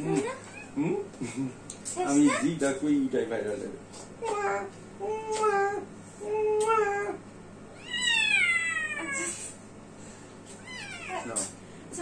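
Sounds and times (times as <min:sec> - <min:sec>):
cat meowing: 0:07.8 - 0:09.3, 0:10.6 - 0:11.5.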